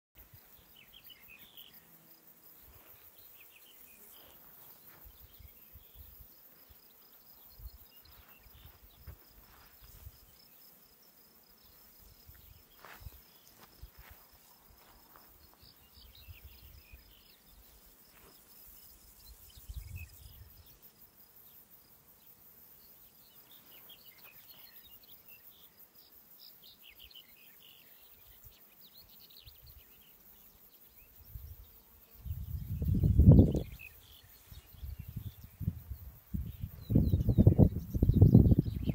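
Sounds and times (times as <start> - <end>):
insects chirring: 0.2 - 38.9
small birds chirping: 0.2 - 38.9
wind bumps on microphone: 32.2 - 33.8, 34.7 - 38.9.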